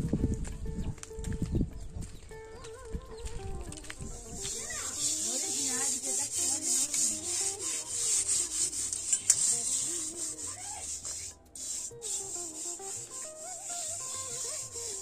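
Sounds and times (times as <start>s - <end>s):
hand scrubbing cooking pot: 4.1s - 15.0s.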